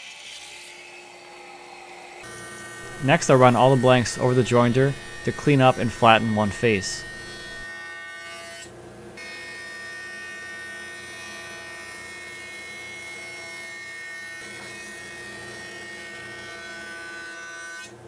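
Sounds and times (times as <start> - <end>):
jointer machine hum: 2.2 - 7.7.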